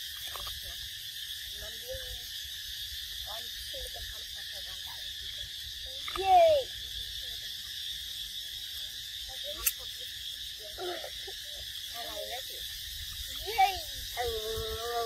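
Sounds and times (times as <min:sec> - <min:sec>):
insect chorus buzzing: 0:00.0 - 0:15.0
loud insect call falling in pitch: 0:04.8 - 0:15.0.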